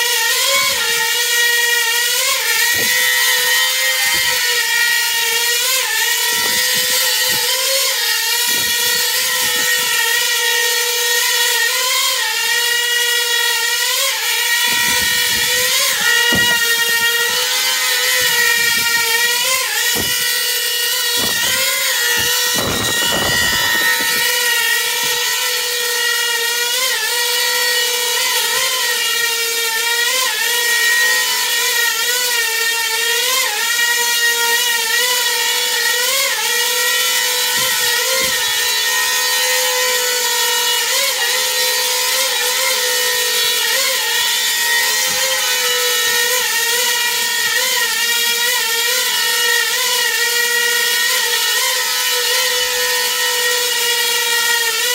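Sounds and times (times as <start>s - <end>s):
drone propellers whining: 14.3s - 26.0s.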